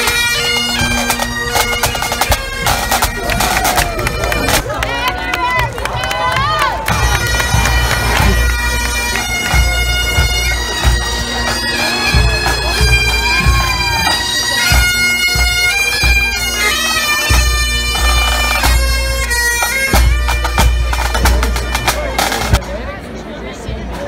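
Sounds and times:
bagpipes playing melody with drone: 0:00.0 - 0:04.6, 0:06.9 - 0:22.6
band drums beating: 0:00.0 - 0:04.7, 0:06.4 - 0:22.6.

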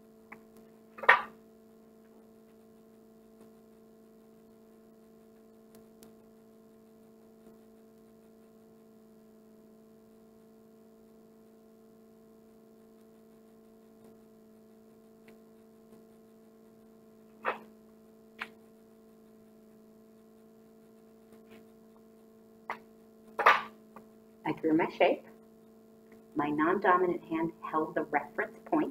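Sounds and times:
low electrical hum: 0:00.0 - 0:28.9
faint ticks: 0:02.5 - 0:08.9, 0:14.9 - 0:17.0.

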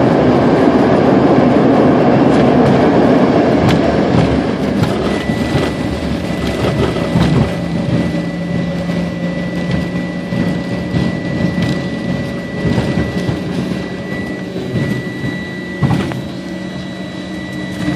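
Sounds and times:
jet engine whine: 0:00.0 - 0:17.9
wheels and airframe rumble: 0:00.0 - 0:17.9.

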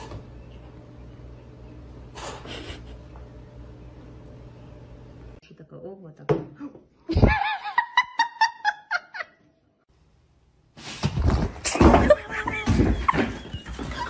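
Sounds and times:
woman laughing: 0:07.0 - 0:09.5, 0:11.8 - 0:14.0.

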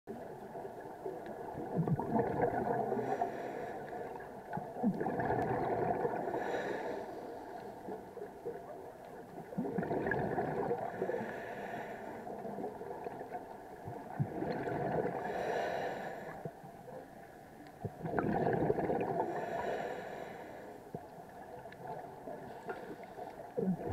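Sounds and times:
bubbles gurgling underwater: 0:00.1 - 0:03.4, 0:04.1 - 0:06.8, 0:08.3 - 0:11.3, 0:12.4 - 0:15.4, 0:17.8 - 0:19.4, 0:21.0 - 0:23.9.

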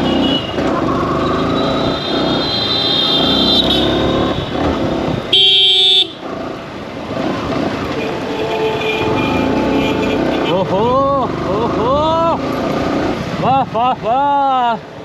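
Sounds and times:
vehicle horn: 0:00.0 - 0:00.6, 0:01.8 - 0:04.6, 0:05.3 - 0:06.2, 0:07.9 - 0:10.6
motorcycle engine running: 0:00.0 - 0:08.3
street traffic: 0:00.0 - 0:15.0.

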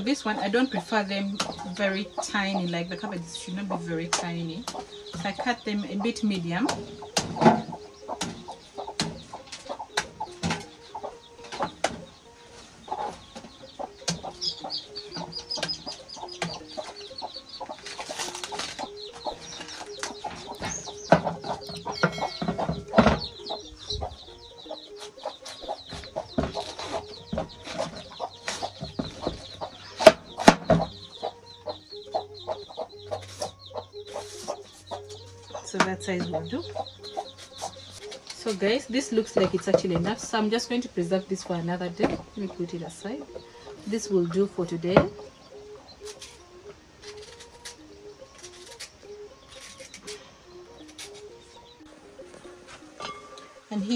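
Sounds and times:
hen clucking: 0:00.0 - 0:51.9
chicks cheeping: 0:00.0 - 0:52.6
knife slicing cabbage: 0:46.0 - 0:46.4, 0:47.0 - 0:47.8, 0:48.4 - 0:50.2, 0:50.8 - 0:51.3.

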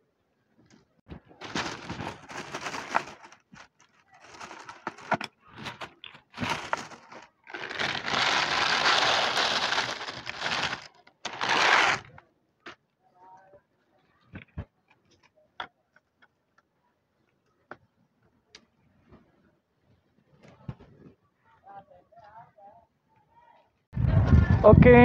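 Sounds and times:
plastic bag rustling: 0:01.2 - 0:12.2
dry kibble poured into plastic tray: 0:01.4 - 0:03.4, 0:04.3 - 0:05.2, 0:06.4 - 0:12.1.

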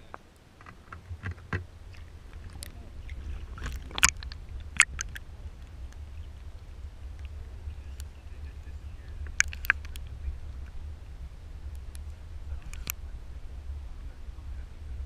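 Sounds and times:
steady low rumble: 0:00.0 - 0:15.0
water sloshing against camera housing: 0:00.6 - 0:06.3, 0:09.2 - 0:10.0.

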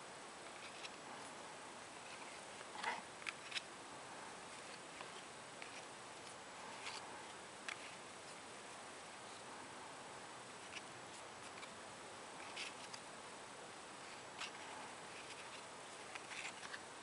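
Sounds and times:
steady hiss: 0:00.0 - 0:17.0
cardboard cards rustling and clicking: 0:00.4 - 0:03.7, 0:04.4 - 0:08.0, 0:10.6 - 0:11.8, 0:12.4 - 0:13.1, 0:14.1 - 0:16.9.

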